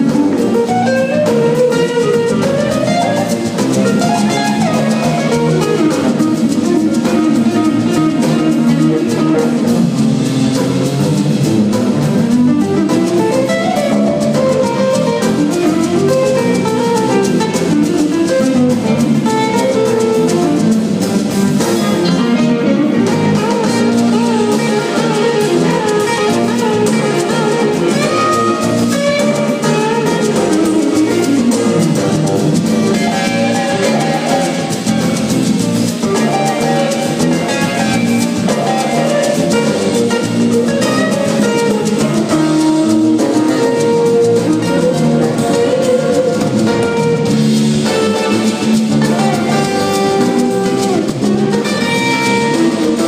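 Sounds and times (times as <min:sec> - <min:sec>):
congas: 0:00.0 - 0:53.0
drum kit: 0:00.0 - 0:53.0
electric bass: 0:00.0 - 0:53.0
electric guitar: 0:00.0 - 0:53.0
keyboards: 0:00.0 - 0:53.0.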